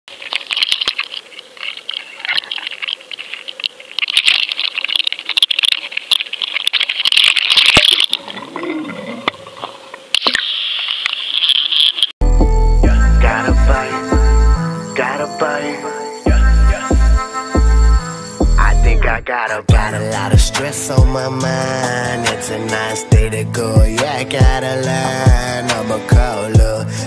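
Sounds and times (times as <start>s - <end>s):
clicks and rattles: 0.1s - 8.2s
music: 12.2s - 27.0s.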